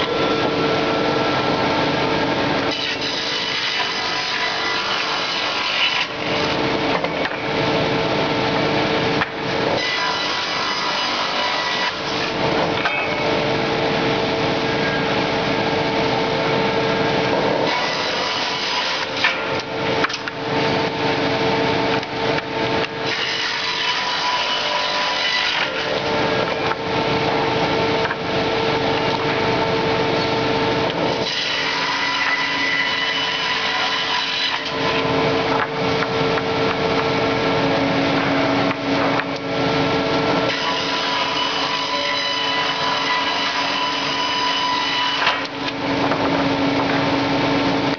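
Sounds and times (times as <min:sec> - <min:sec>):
steady machine whine: 0:00.0 - 0:02.7, 0:12.1 - 0:17.7, 0:34.6 - 0:40.5
board edger sawing wood: 0:02.7 - 0:06.6, 0:40.4 - 0:45.6.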